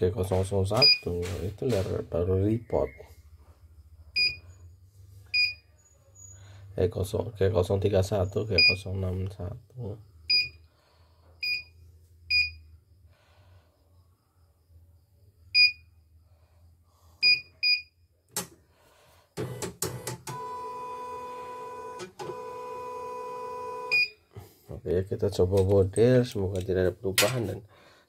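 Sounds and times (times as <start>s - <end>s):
control panel beeps: 0.8s - 1.1s, 4.2s - 4.4s, 8.6s - 8.8s, 10.3s - 10.6s.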